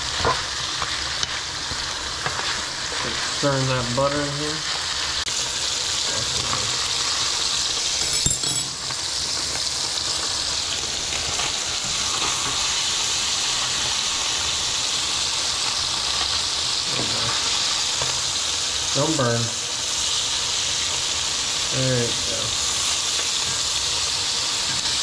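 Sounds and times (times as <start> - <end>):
fish fillets sizzling in butter: 0.0 - 25.0
sharp clink: 8.0 - 8.9.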